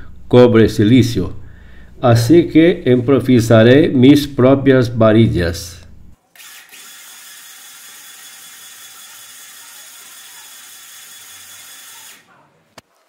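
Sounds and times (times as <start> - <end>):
welder wire feeder running: 6.3 - 13.0.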